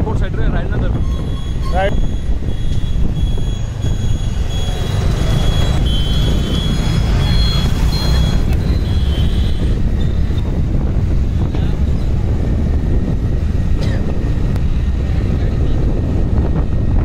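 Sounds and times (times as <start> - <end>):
motorbikes: 0.0 - 17.0
wind on microphone: 0.0 - 17.0
thin high tones: 1.0 - 10.2
scooter engine running: 1.2 - 12.1.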